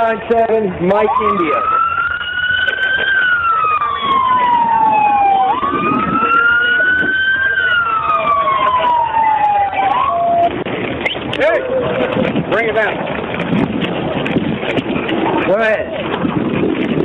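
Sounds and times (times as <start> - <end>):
police siren wailing: 0.9 - 12.5.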